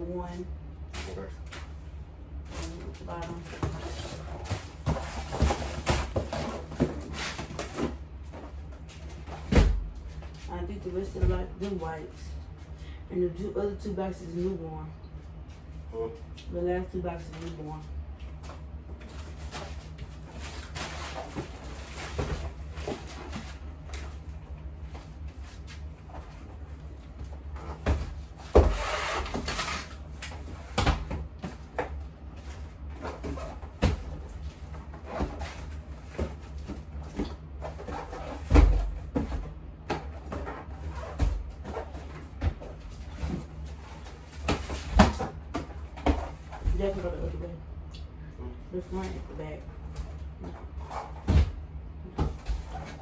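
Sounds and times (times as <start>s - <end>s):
steady low hum: 0.0s - 53.0s
cardboard boxes knocking and thumping: 2.8s - 10.2s, 19.0s - 24.2s, 27.2s - 47.2s, 50.0s - 53.0s.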